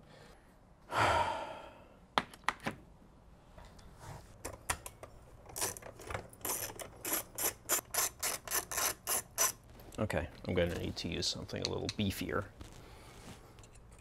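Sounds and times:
tool scraping ratcheting strokes: 6.4s - 9.6s.

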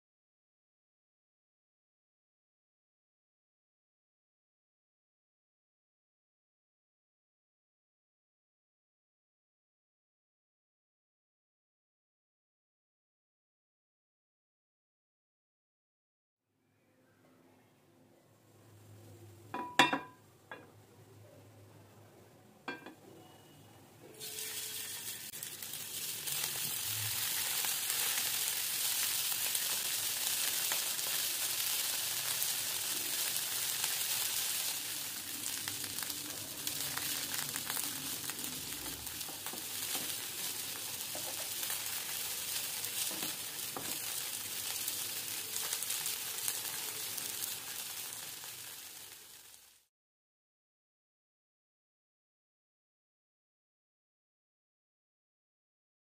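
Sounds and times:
chicken sizzling in hot oil: 24.2s - 49.9s.

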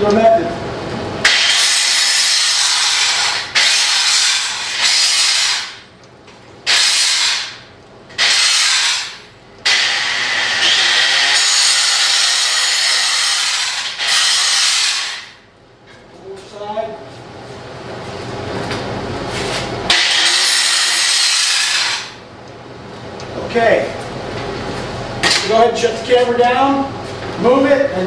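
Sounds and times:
grinder grinding steel: 1.3s - 5.8s, 6.7s - 7.6s, 8.2s - 15.3s, 19.9s - 22.2s.

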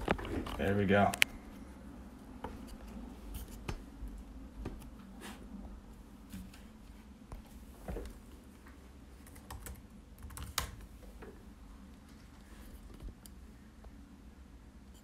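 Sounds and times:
laptop keyboard typing: 9.2s - 10.9s.

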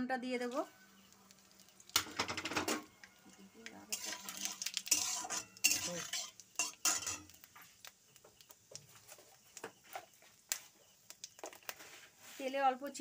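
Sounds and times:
metal spatula scraping a metal pan: 3.8s - 7.6s.

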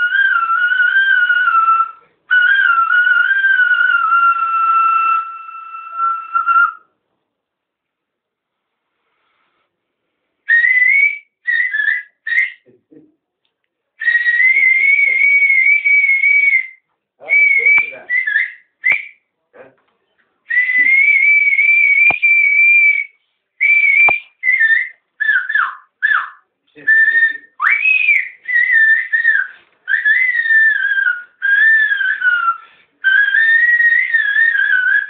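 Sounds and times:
man whistling a slow melody: 10.5s - 12.6s, 14.0s - 19.2s, 20.5s - 26.2s, 26.9s - 35.0s.

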